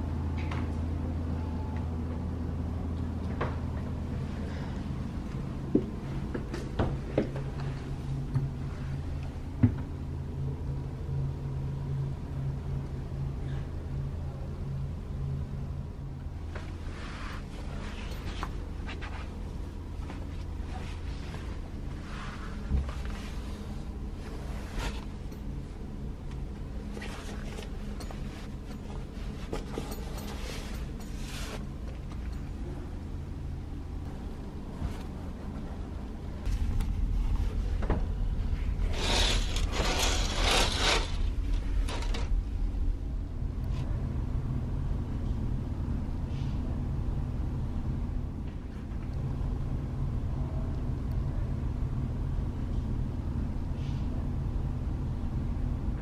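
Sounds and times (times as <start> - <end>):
ferry engines droning: 0.0 - 56.0
bedding rustling: 16.4 - 25.6, 26.4 - 32.6
curtain swishing on runners: 16.6 - 19.4, 28.2 - 31.8, 38.8 - 42.3.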